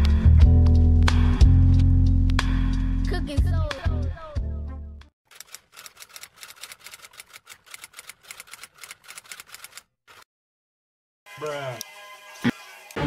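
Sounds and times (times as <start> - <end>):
fast keyboard typing clicks: 5.3 - 10.2.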